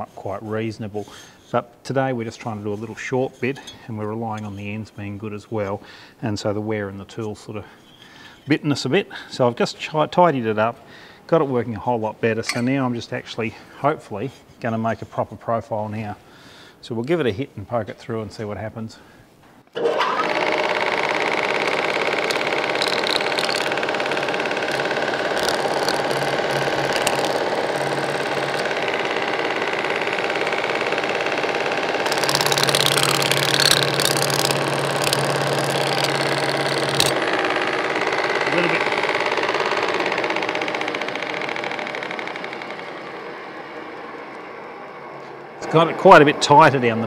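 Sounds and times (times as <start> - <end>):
sheet-metal machine running: 19.8 - 47.0.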